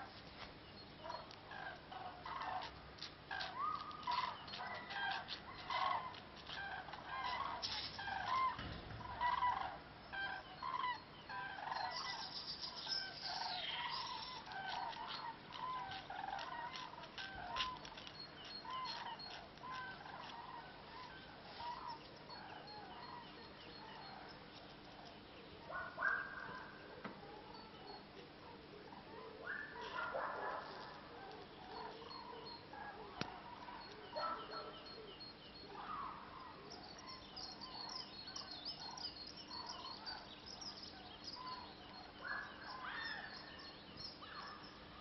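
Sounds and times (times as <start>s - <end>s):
cranes trumpeting calls: 1.0s - 24.3s.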